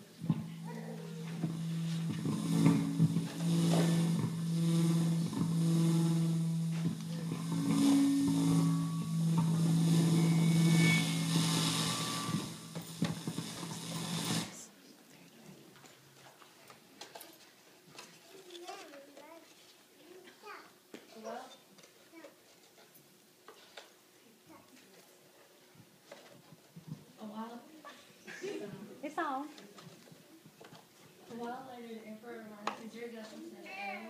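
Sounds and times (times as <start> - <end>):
instrumental music: 0.0 - 14.6.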